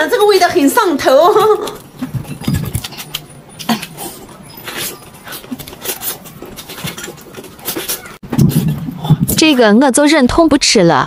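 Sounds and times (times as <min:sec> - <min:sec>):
person chewing chicken: 0:02.0 - 0:08.8.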